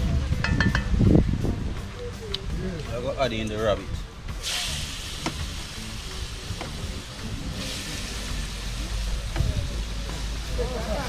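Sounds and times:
meat sizzling in hot oil: 4.4s - 10.3s.

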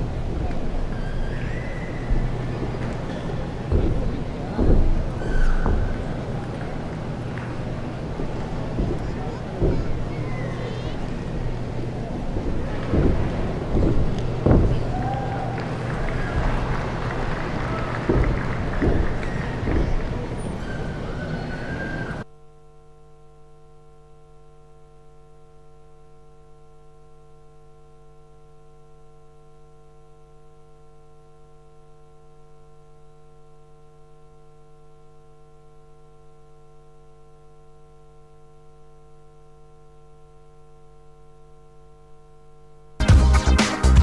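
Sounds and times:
electrical mains hum: 0.0s - 44.0s
music: 43.0s - 44.0s.

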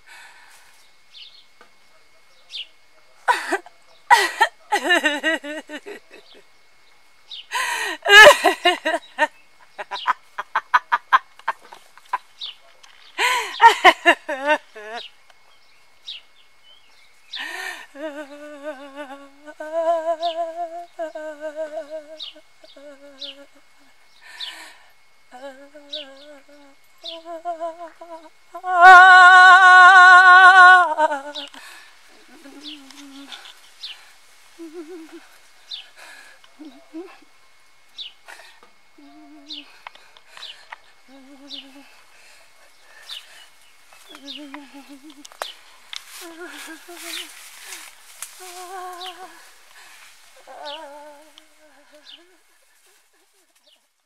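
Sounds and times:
woman cackling with laughter: 3.3s - 6.4s, 7.5s - 12.2s, 13.2s - 15.0s, 34.6s - 35.3s
woman keening and crying: 7.5s - 9.2s, 13.2s - 15.0s, 17.4s - 22.1s, 41.0s - 42.0s, 46.1s - 52.6s.

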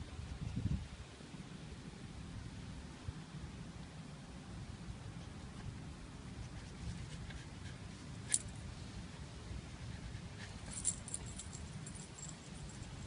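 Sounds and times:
low steady rumble: 0.0s - 13.0s
light metallic jingling: 8.2s - 8.7s, 10.4s - 13.0s.

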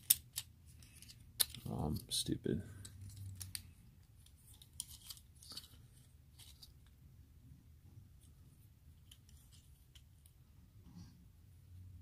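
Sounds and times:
plastic toy parts clicking: 0.0s - 2.1s, 2.8s - 5.8s.

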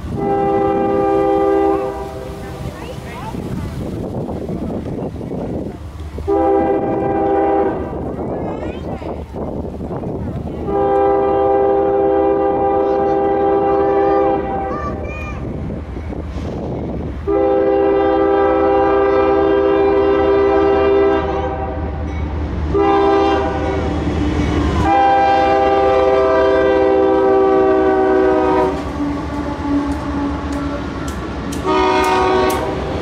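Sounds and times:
diesel locomotives rumbling: 0.0s - 33.0s
locomotive air horn blasts: 0.1s - 2.4s, 6.2s - 8.0s, 10.6s - 14.7s, 17.2s - 22.0s, 22.7s - 23.9s, 24.8s - 30.8s, 31.6s - 33.0s
train wheels clicking: 1.9s - 11.2s, 28.2s - 33.0s.

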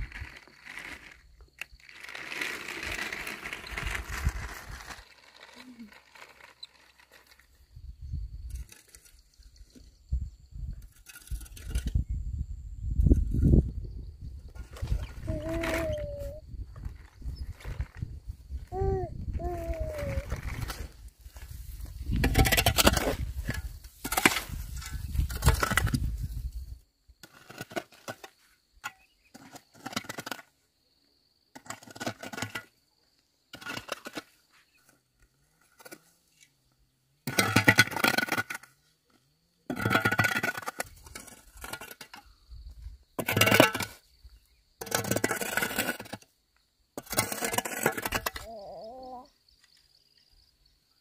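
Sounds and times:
debris clattering and scraping: 20.1s - 26.3s, 37.3s - 38.8s, 39.7s - 42.3s, 43.2s - 44.0s, 44.8s - 46.2s, 47.0s - 48.5s.

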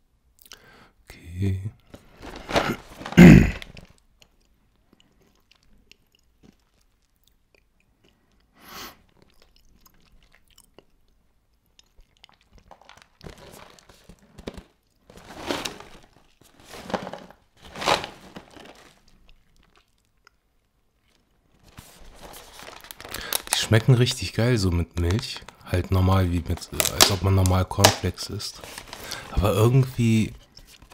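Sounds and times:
chewing crunchy cereal: 2.2s - 24.1s.

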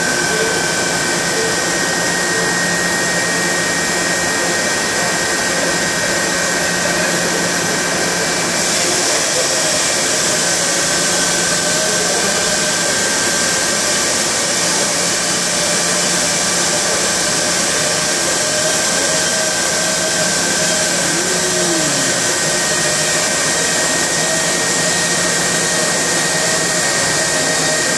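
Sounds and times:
wavering low machine tone: 20.7s - 23.0s.

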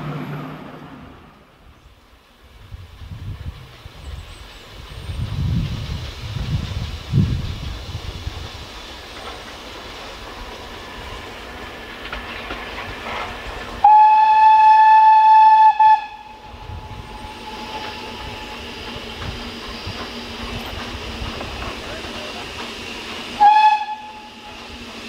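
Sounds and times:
train running noise: 0.0s - 25.0s
steam train whistle: 13.8s - 18.7s, 23.3s - 24.6s.

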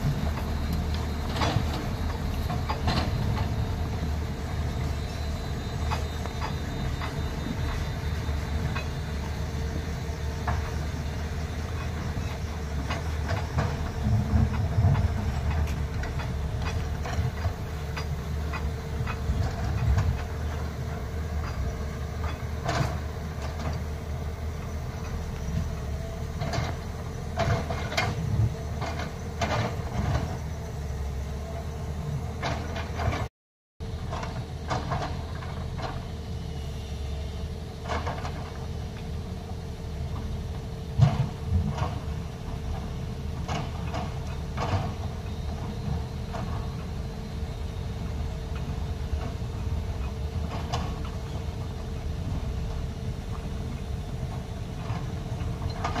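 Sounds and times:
truck clanks and knocks: 0.0s - 33.3s, 33.9s - 36.2s, 37.8s - 56.0s
diesel truck engine running: 0.0s - 56.0s.

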